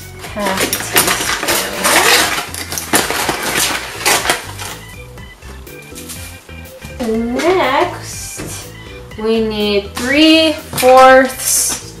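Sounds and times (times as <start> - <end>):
metal measuring spoons clinking: 0.2 - 4.8
paper bag crinkling: 0.2 - 5.0.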